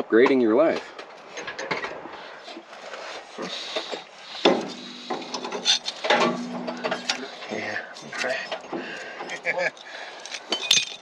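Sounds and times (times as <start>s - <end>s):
metal clicks and scraping: 3.6s - 11.0s
low motor hum: 6.1s - 7.4s.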